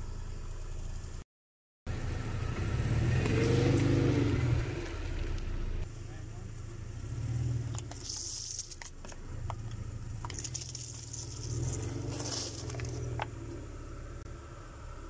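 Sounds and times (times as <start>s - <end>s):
car engine running low: 0.0s - 1.2s, 1.9s - 15.0s
objects cracking under tyres: 7.6s - 13.6s.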